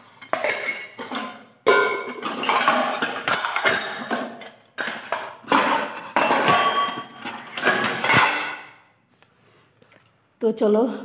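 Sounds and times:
steel dishes clanking: 0.0 - 8.8.

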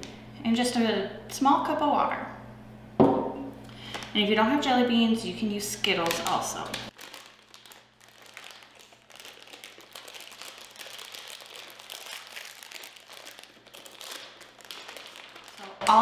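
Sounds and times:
plastic bag crinkling: 5.8 - 16.0.

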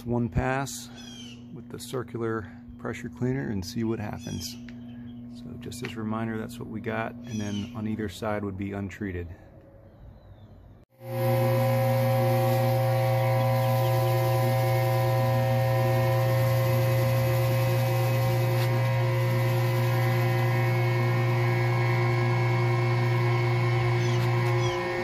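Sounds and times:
pressure washer motor hum: 10.9 - 25.0.

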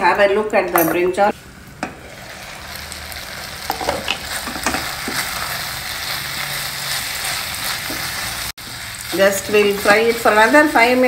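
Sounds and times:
vegetables sizzling in oil: 1.9 - 11.0.

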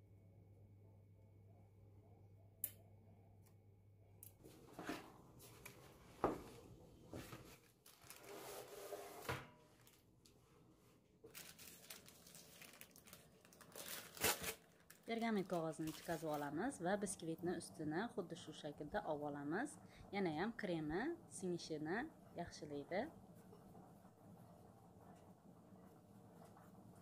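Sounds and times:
low steady hum: 0.0 - 8.2, 9.2 - 27.0
parchment paper crinkling: 7.3 - 8.7, 11.3 - 16.5.

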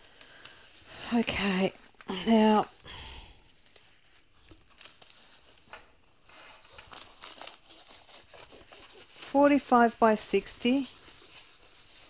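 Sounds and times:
canvas crinkling and rustling: 3.5 - 12.0.

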